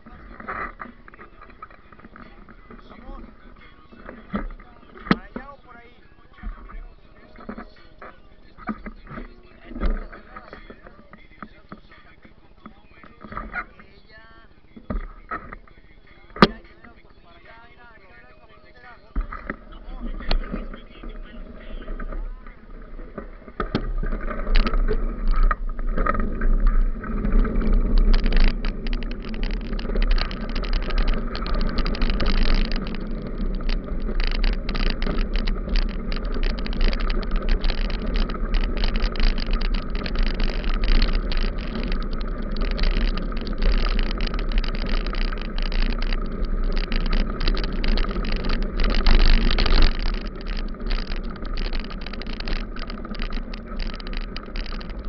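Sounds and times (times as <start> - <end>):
bike tyres crackling on gravel: 0.0 - 55.0
wind rumble on microphone: 19.2 - 55.0.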